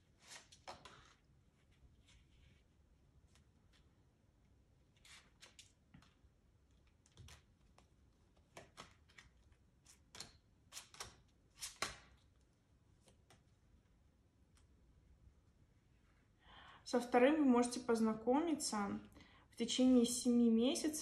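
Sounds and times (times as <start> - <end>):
cards being shuffled: 0.2 - 2.5, 6.9 - 12.3
cards slapping on table: 10.1 - 12.2.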